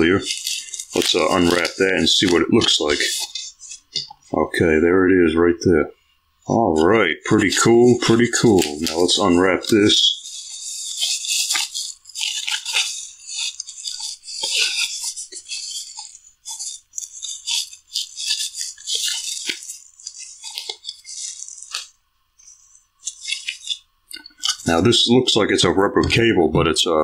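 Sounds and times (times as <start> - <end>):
plastic bag crinkling: 0.0 - 4.1, 6.5 - 25.0.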